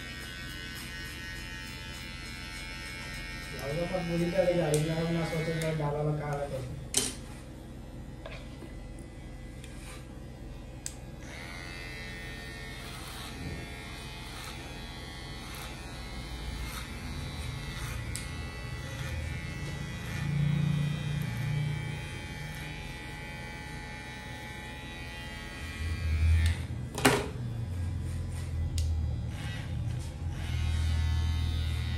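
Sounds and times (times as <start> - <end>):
electric hair clipper running: 0.0 - 31.9.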